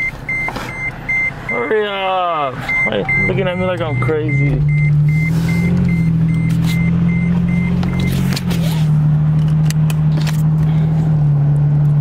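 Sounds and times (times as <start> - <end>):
dashboard warning chime beeping: 0.0 - 8.5
truck engine low hum: 0.0 - 12.0.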